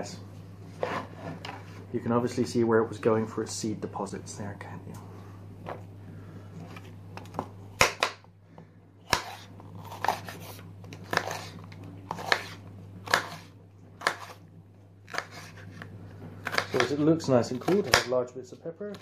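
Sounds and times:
knife slicing pepper on board: 0:09.1 - 0:14.4, 0:15.1 - 0:18.1.

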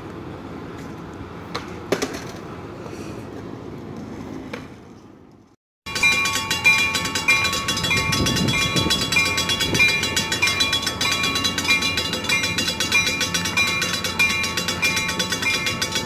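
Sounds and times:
crossing warning bell ringing: 0:05.9 - 0:16.0.

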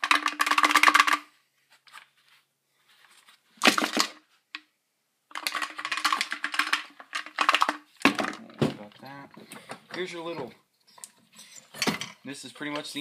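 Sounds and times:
chainsaw parts rattling: 0:00.0 - 0:01.3, 0:05.3 - 0:08.6.

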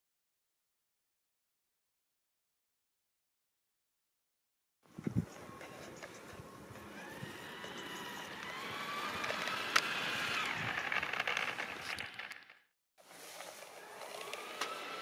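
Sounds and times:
model train motor whine: 0:06.5 - 0:12.7, 0:13.7 - 0:15.0.

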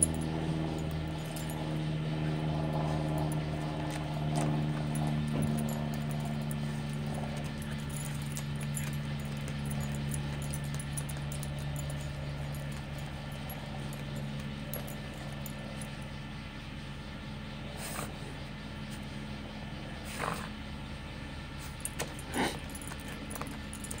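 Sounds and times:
steady low hum: 0:00.0 - 0:24.0
dog paws scratching soil: 0:00.2 - 0:15.8.

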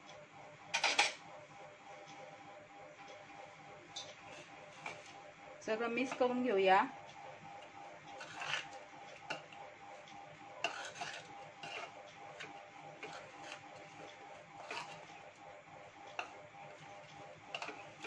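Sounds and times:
spoon stirring dry spices: 0:06.0 - 0:06.3, 0:08.1 - 0:09.6, 0:10.6 - 0:15.2, 0:16.1 - 0:18.0.

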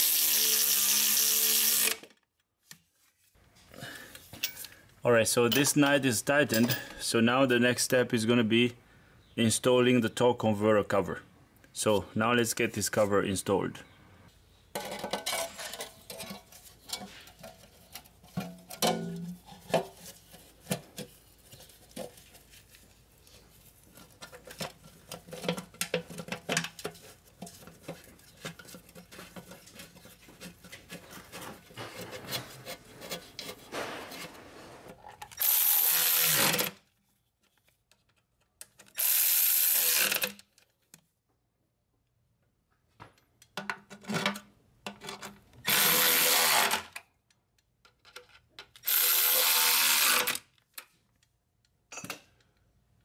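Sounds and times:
metal parts clicking and scraping: 0:06.4 - 0:07.0, 0:14.7 - 0:19.7.

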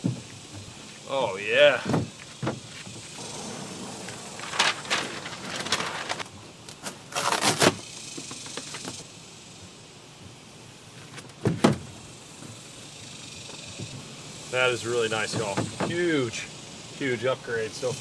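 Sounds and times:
paper liner rustling and crackling: 0:03.2 - 0:07.8.

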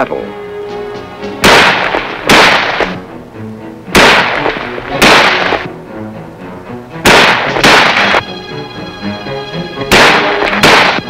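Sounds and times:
film music: 0:00.0 - 0:11.0
rifle shots with echo: 0:01.4 - 0:03.0, 0:03.9 - 0:05.7, 0:07.0 - 0:08.2, 0:09.9 - 0:11.0.

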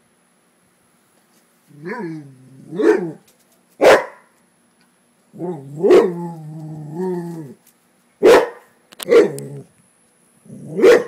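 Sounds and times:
dog's long growling cry: 0:01.7 - 0:03.2, 0:05.3 - 0:07.6, 0:09.1 - 0:09.7, 0:10.4 - 0:11.0
dog barking: 0:02.8 - 0:03.2, 0:03.8 - 0:04.3, 0:05.8 - 0:06.2, 0:08.2 - 0:09.4, 0:10.7 - 0:11.0.

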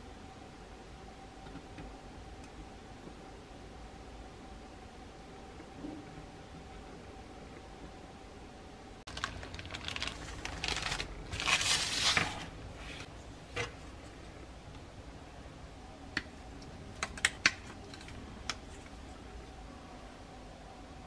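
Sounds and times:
plastic rustling and clattering: 0:09.1 - 0:13.8.

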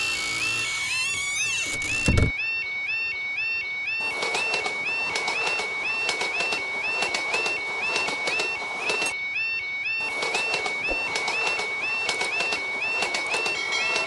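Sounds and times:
level-crossing warning bell: 0:00.0 - 0:14.0
train wheel clicks: 0:04.2 - 0:09.2, 0:10.1 - 0:14.0.

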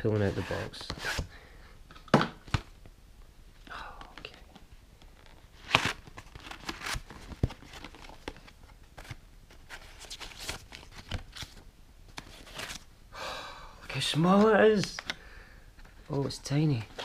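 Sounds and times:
cardboard rustling and scraping: 0:05.1 - 0:11.6.

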